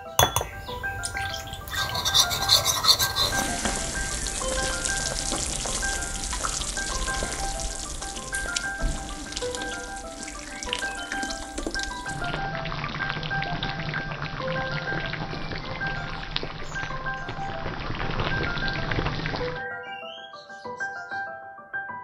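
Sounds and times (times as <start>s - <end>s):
light background music: 0.0s - 22.0s
spoon scraping ceramic bowl: 0.2s - 0.5s, 1.6s - 3.8s
steady sizzling hiss: 0.6s - 12.8s.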